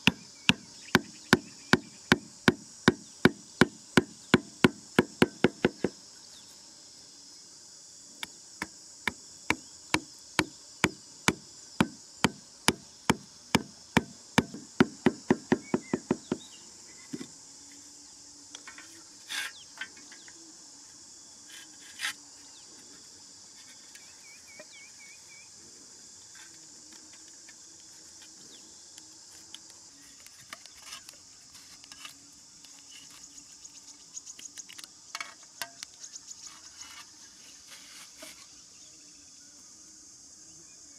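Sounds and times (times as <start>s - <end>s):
hatchet knocking wooden peg: 0.0s - 6.0s, 9.9s - 16.4s
insects buzzing: 0.0s - 40.9s.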